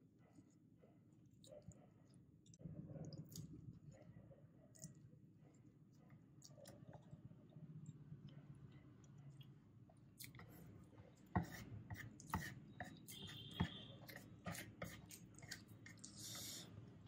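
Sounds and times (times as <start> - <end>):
noodles being chewed: 4.6 - 11.3, 14.0 - 16.7.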